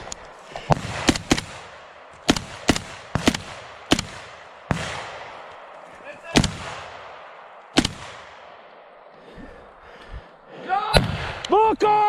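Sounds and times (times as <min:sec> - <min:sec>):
gunshot echo among trees: 0:00.0 - 0:09.3, 0:10.9 - 0:11.6
rifle shots: 0:00.7 - 0:09.0.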